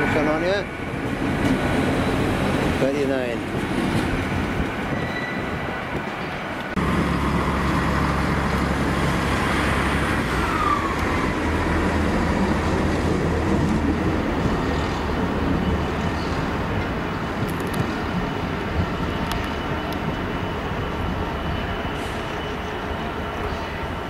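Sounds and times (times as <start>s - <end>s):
diesel locomotive engine drone: 0.0s - 24.0s
quieter train noise: 0.0s - 24.0s
brief falling squeal: 5.0s - 5.5s.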